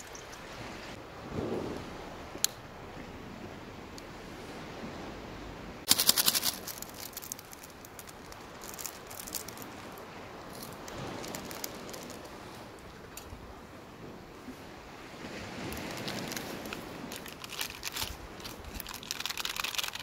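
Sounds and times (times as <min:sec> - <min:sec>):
rattle of sharp clicks: 0:05.9 - 0:09.6
faint ticks and rustles: 0:05.9 - 0:13.4, 0:15.6 - 0:20.0.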